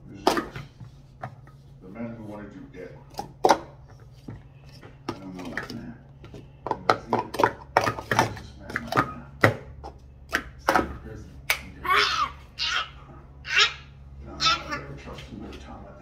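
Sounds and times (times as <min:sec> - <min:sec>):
plastic cups clacking: 0:00.2 - 0:01.6, 0:03.1 - 0:11.7.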